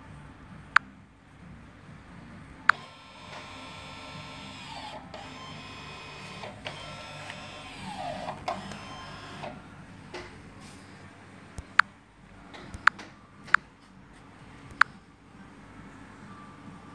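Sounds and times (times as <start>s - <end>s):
electric motor whining: 2.7s - 9.7s.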